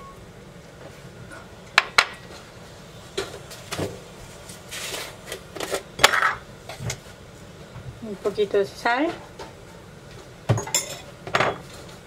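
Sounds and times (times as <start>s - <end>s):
kitchen utensils clinking: 10.5s - 11.6s.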